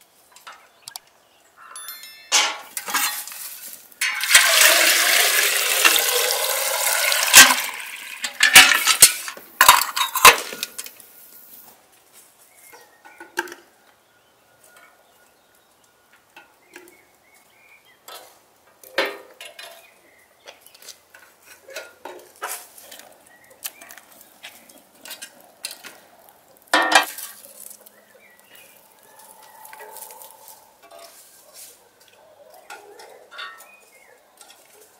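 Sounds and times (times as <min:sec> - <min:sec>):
metal tongs clinking on brazier: 0:01.6 - 0:04.6.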